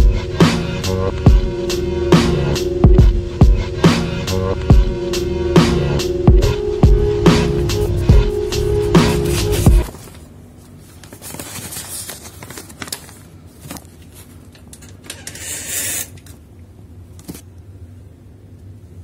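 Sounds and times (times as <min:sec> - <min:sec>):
hip-hop music: 0:00.0 - 0:09.8.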